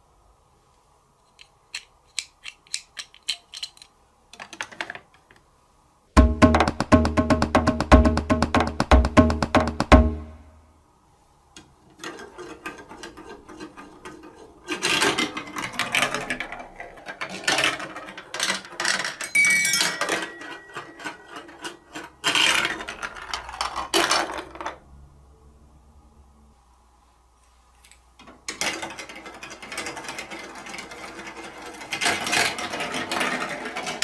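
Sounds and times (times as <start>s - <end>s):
plastic ball rattling through tubes: 11.9s - 24.8s, 28.2s - 34.0s.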